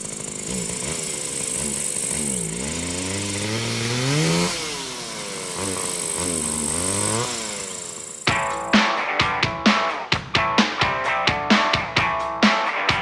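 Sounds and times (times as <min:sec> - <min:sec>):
two-stroke engine revving: 0:00.0 - 0:08.9.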